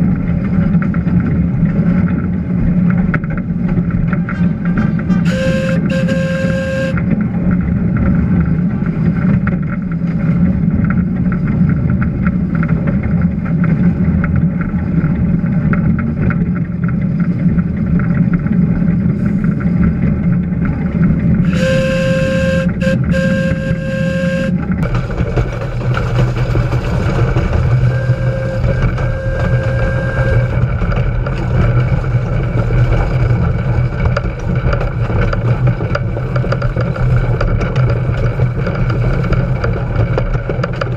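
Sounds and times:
steam locomotive rumble and clatter: 0:00.0 - 0:40.9
steam whistle blasts: 0:05.2 - 0:07.0, 0:21.4 - 0:24.7, 0:27.9 - 0:30.6.

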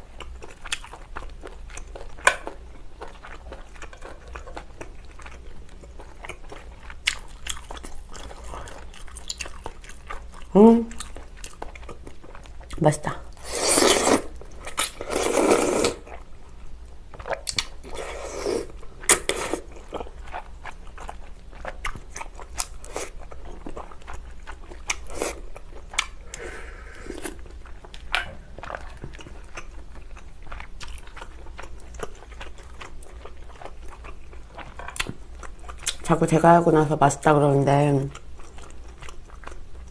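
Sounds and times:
wet chewing: 0:00.1 - 0:26.5, 0:27.2 - 0:36.6, 0:38.0 - 0:39.9
slurping noodles: 0:13.4 - 0:14.3, 0:15.0 - 0:16.0.

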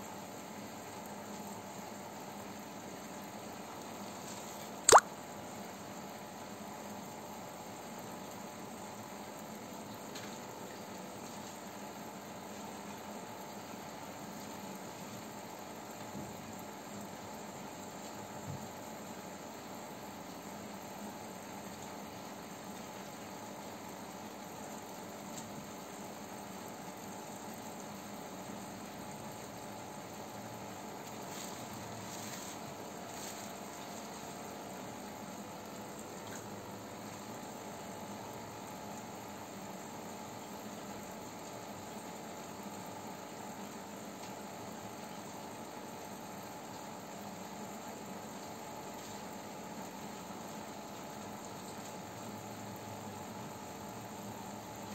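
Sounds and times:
aquarium water bubbling: 0:00.1 - 0:54.9
faint light splashes: 0:04.8 - 0:05.1.

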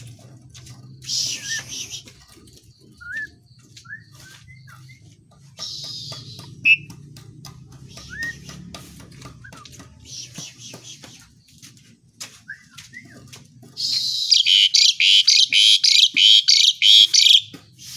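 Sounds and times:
starling whistles: 0:01.1 - 0:02.0.

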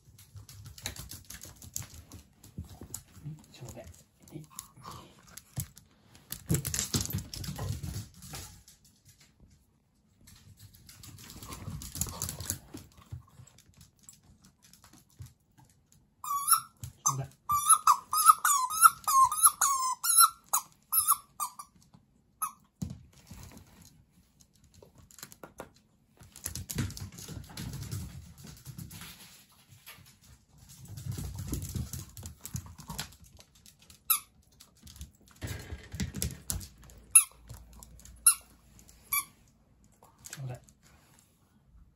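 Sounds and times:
puppy paws pattering on wooden floor: 0:00.0 - 0:41.9
squeaky toy squeaking: 0:16.2 - 0:21.7.

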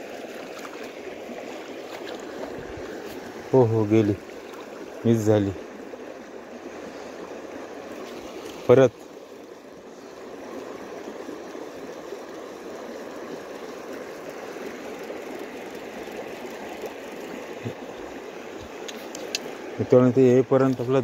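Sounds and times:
fishing reel whirring: 0:14.1 - 0:17.6.

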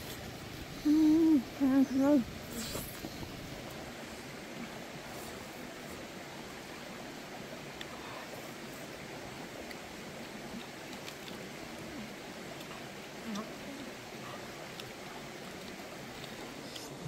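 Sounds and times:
steady outdoor hiss: 0:00.0 - 0:17.0
faint clicks: 0:09.6 - 0:09.8, 0:10.5 - 0:11.8, 0:12.5 - 0:17.0.

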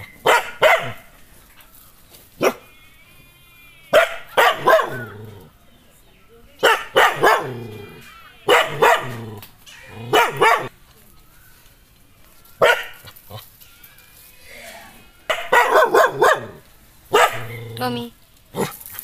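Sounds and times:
dog barking aggressively: 0:00.2 - 0:01.1, 0:02.4 - 0:02.6, 0:04.0 - 0:05.2, 0:06.6 - 0:07.7, 0:08.5 - 0:10.7, 0:12.6 - 0:13.0, 0:15.3 - 0:17.7.

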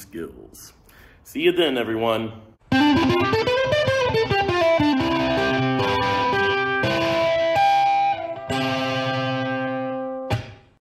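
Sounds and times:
plucked guitar notes and chord: 0:02.6 - 0:10.6.

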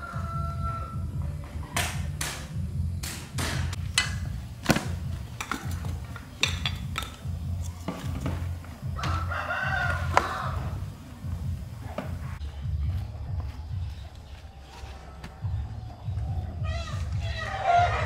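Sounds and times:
hard objects knocking and clattering: 0:03.9 - 0:08.6.

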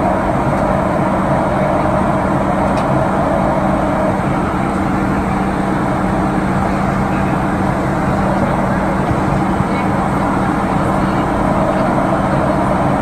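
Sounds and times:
airflow rushing: 0:00.0 - 0:13.0
jet engines humming: 0:00.0 - 0:13.0
low drone: 0:00.0 - 0:13.0.

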